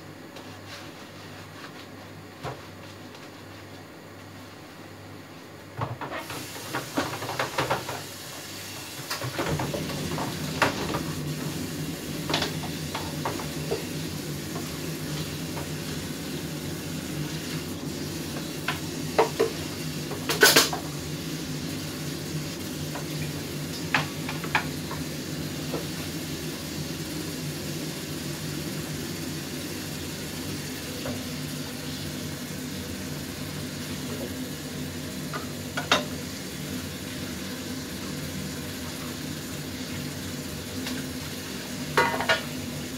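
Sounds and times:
pots and pans clattering: 5.8s - 8.1s, 9.0s - 11.1s, 19.2s - 20.9s, 41.9s - 42.5s.

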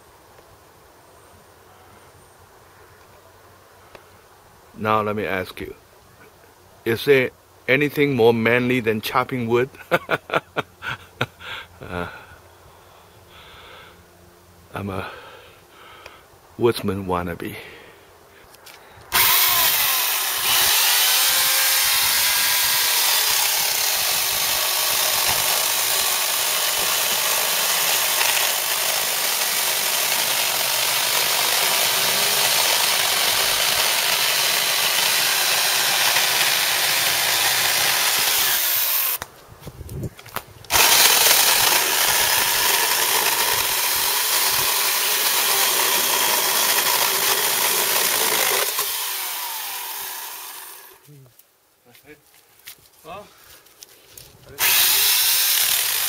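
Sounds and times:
electric chainsaw cutting wood: 19.1s - 39.2s, 40.7s - 51.0s, 54.6s - 56.0s.

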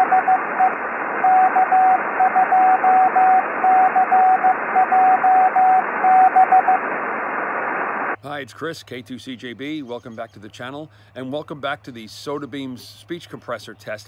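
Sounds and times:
morse code tone: 0.0s - 6.8s
shortwave radio hiss: 0.0s - 8.6s.

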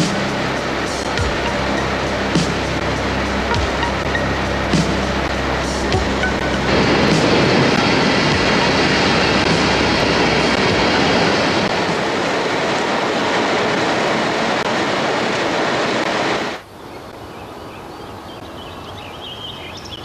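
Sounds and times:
machinery roar: 0.0s - 16.6s
open-air ambience: 0.0s - 20.0s
bird chirps: 16.8s - 20.0s.

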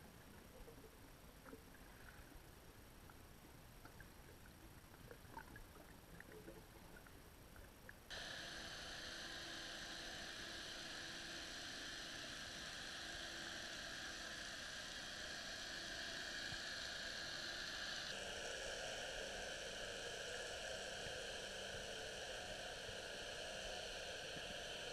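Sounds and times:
faint hum: 0.0s - 24.9s
underwater hiss: 8.1s - 24.9s.

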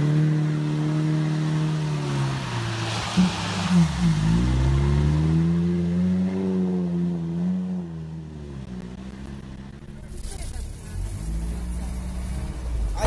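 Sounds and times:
vehicle engine revving: 0.0s - 13.0s
water and mud splashing: 1.2s - 5.4s.

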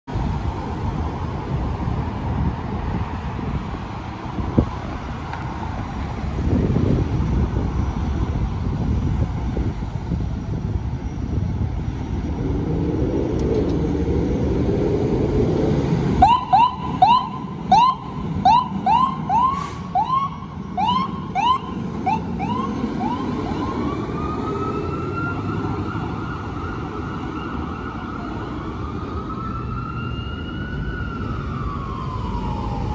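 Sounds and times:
engine and traffic rumble: 0.0s - 32.9s
fire engine siren: 13.6s - 32.9s.

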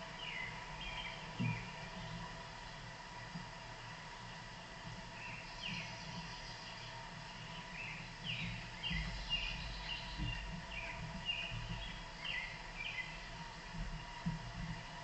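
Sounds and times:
steady background hiss: 0.0s - 15.0s
birds chirping: 0.2s - 2.2s, 5.1s - 13.4s.

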